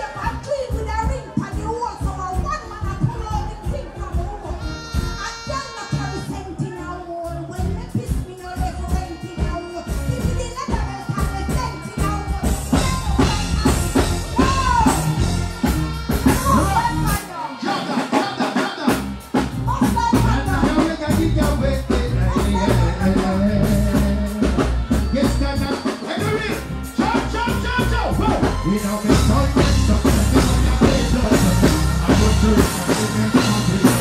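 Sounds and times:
live reggae band over pa: 0:00.0 - 0:34.0
person singing: 0:19.8 - 0:26.2, 0:28.2 - 0:34.0.

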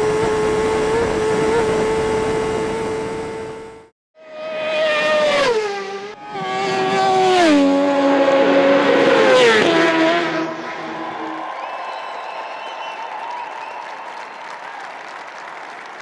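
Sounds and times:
motorcycle engine at high revs: 0:00.0 - 0:10.6.

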